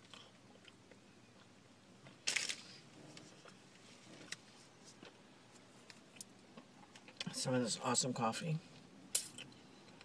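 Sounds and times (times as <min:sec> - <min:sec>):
crackly crunch of bread: 0:00.0 - 0:07.4
faint chewing: 0:02.9 - 0:07.3.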